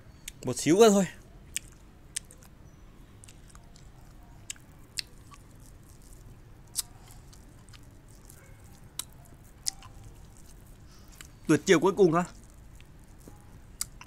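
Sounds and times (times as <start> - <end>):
wet mouth clicks and smacks: 1.5 - 2.5, 3.2 - 11.4, 12.3 - 14.0.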